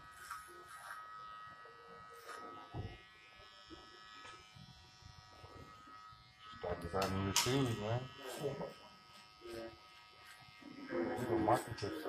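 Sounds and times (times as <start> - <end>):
electric hair clippers buzzing: 0.0 - 12.0
clipper blade scratching hair: 0.1 - 1.4, 2.0 - 12.0.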